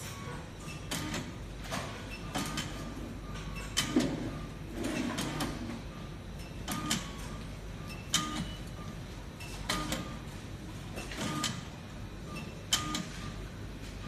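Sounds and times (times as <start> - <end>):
machine clicking and clacking: 0.0 - 5.8, 6.4 - 10.2, 11.0 - 11.7, 12.4 - 13.2.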